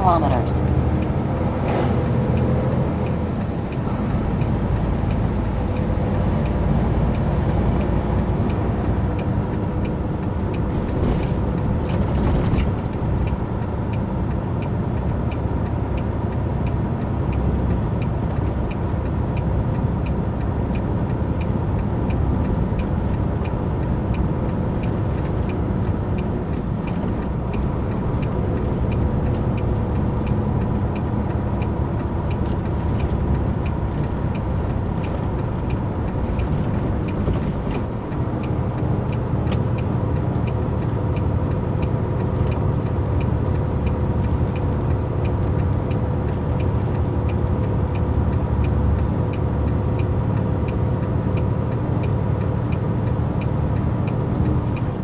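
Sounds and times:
road noise: 0:00.0 - 0:55.0
truck diesel engine: 0:00.0 - 0:55.0
light ticking: 0:02.3 - 0:10.8, 0:11.5 - 0:55.0.

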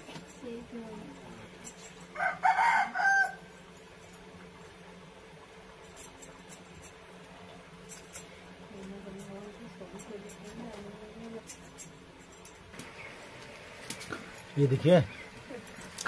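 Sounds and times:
rooster crowing: 0:02.1 - 0:03.6.

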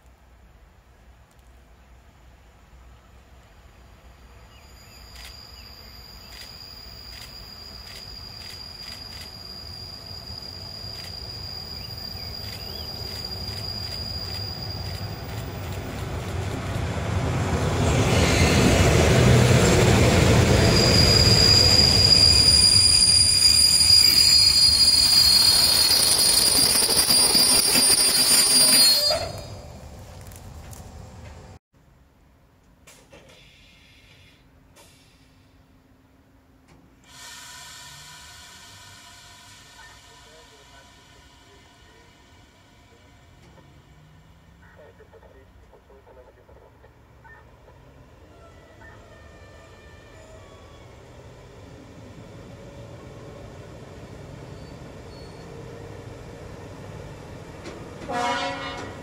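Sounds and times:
wheels rumbling on rails: 0:03.2 - 0:31.6, 0:37.6 - 0:59.0
high steady brake squeal: 0:04.1 - 0:15.6, 0:20.4 - 0:29.8, 0:33.3 - 0:35.6, 0:37.0 - 0:44.5, 0:48.1 - 0:56.2.

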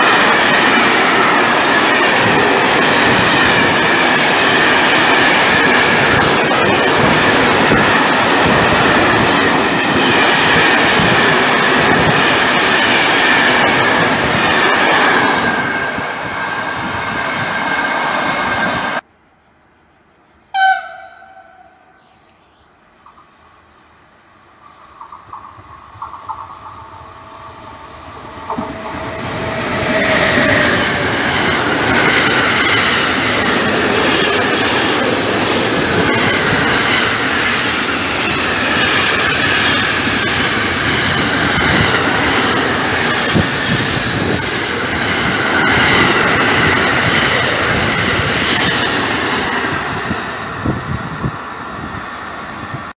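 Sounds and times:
wheels rumbling on rails: 0:00.0 - 0:19.0, 0:24.9 - 0:52.9
high wheel squeal: 0:26.8 - 0:52.0.

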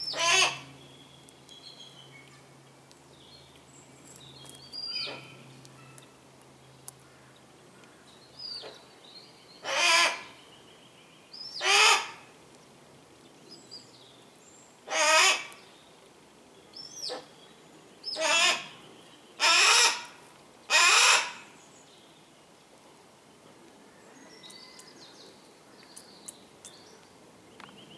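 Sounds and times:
hawk harsh rasping calls: 0:00.1 - 0:00.6, 0:09.6 - 0:10.3, 0:11.6 - 0:12.2, 0:14.9 - 0:15.5, 0:18.2 - 0:18.7, 0:19.4 - 0:21.5.

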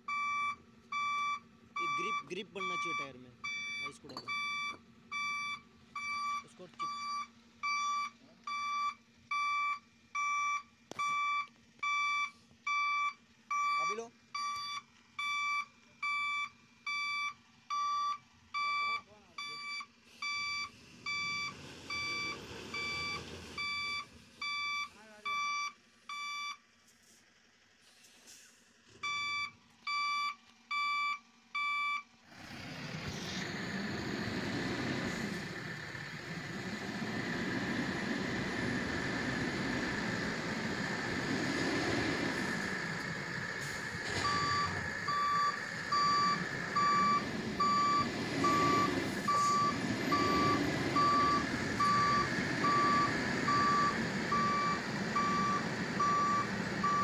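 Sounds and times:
vehicle warning beeper: 0:00.0 - 0:26.6, 0:29.0 - 0:32.1, 0:42.2 - 0:57.0.

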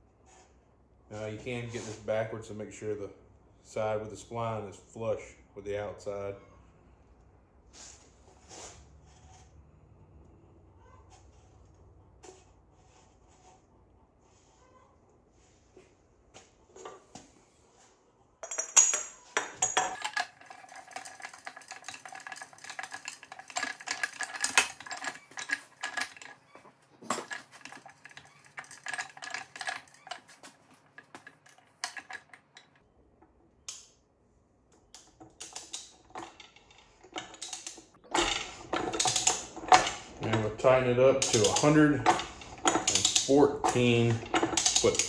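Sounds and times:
steel tools clinking and rattling: 0:18.4 - 0:32.8, 0:34.9 - 0:45.0.

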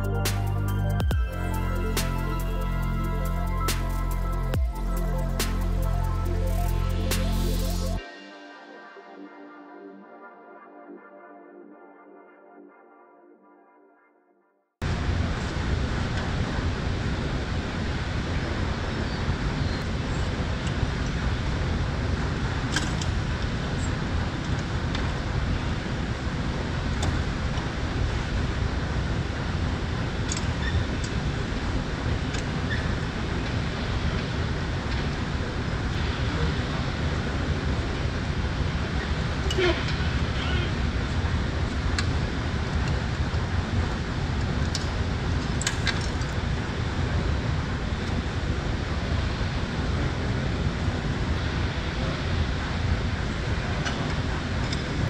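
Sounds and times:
low rushing hangar noise: 0:00.0 - 0:08.0.

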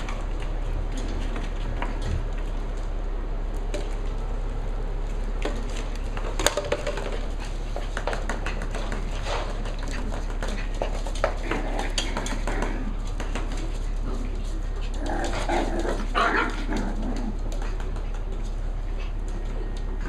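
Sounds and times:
dog claws clicking on wood floor: 0:05.0 - 0:20.0.

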